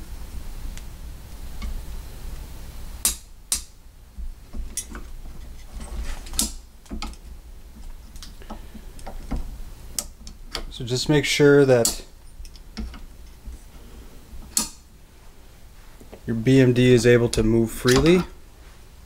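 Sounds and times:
low steady hum: 0.0 - 19.0
light metal clicks and knocks: 11.8 - 13.1, 17.8 - 18.3.

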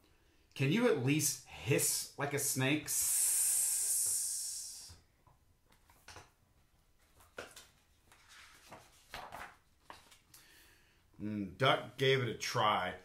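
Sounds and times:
person hissing like a snake: 2.9 - 4.9
book pages rustling: 5.6 - 10.3.

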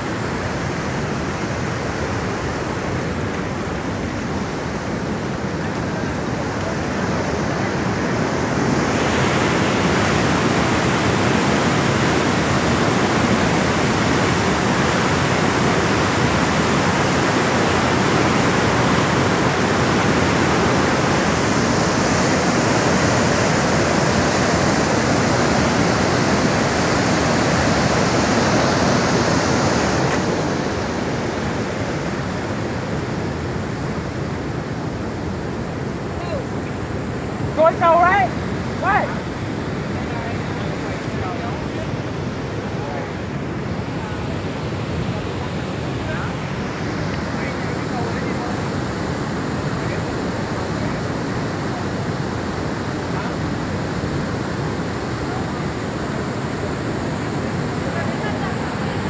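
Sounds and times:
flood water roaring: 0.0 - 59.0.

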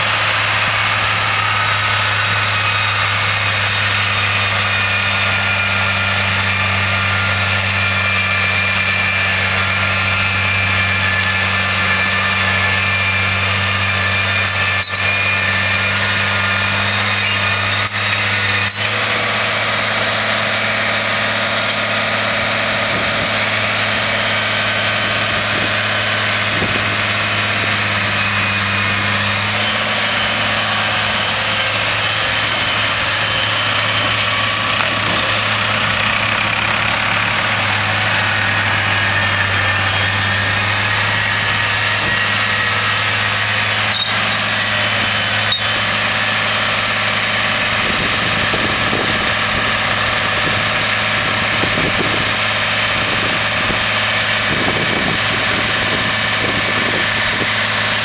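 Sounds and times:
forage harvester machine whine: 0.0 - 58.0
tractor engine low drone: 0.0 - 58.0.

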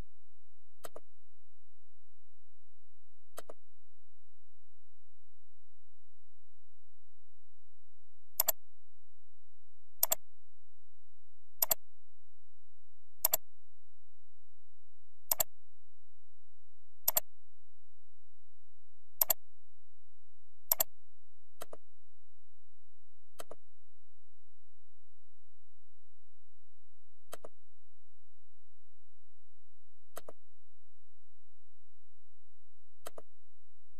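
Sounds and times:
computer mouse clicking: 0.8 - 1.0, 3.4 - 3.6, 11.6 - 11.8, 15.3 - 15.5, 19.2 - 19.4, 20.7 - 20.9, 21.6 - 21.8, 23.4 - 23.6, 27.3 - 27.5, 30.1 - 30.4, 33.0 - 33.3.

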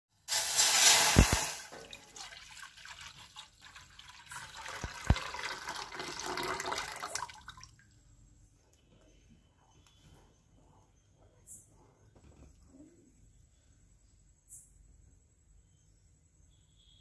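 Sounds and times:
milk pouring into metal pot: 0.3 - 7.8.

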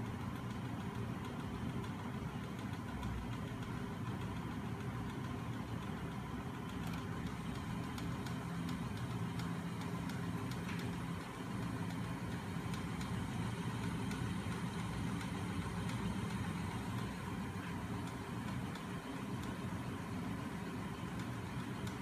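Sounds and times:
faint ticking: 0.0 - 22.0
low mechanical hum: 0.0 - 22.0.

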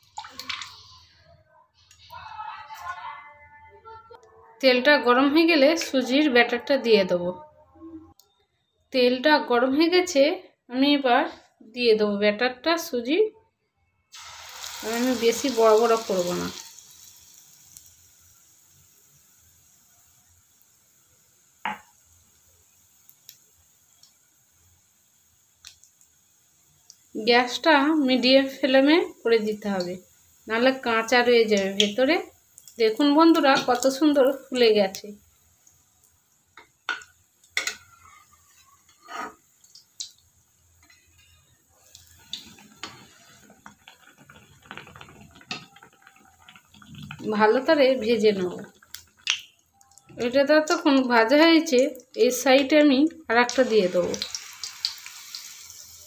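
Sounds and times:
batter sizzling in hot oil: 14.1 - 56.0
metal spatula scraping a pan: 37.6 - 39.6, 42.3 - 43.7.

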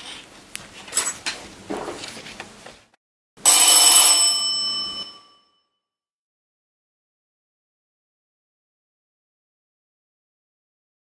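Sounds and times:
bell ringing high tones: 3.4 - 5.8.

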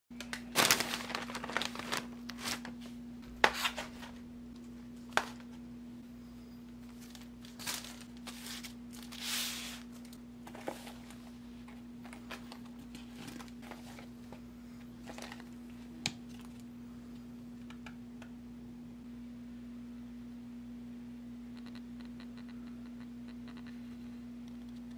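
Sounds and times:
steady low hum: 0.1 - 24.9
paper wrappers crinkling: 0.2 - 4.1, 6.8 - 11.2, 12.1 - 14.1, 15.0 - 16.6.

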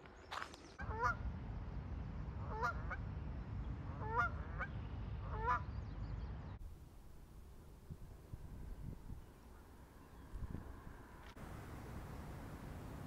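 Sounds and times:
geese honking: 0.8 - 1.2, 2.4 - 3.0, 3.9 - 5.7
wind rumble on microphone: 0.8 - 13.0.

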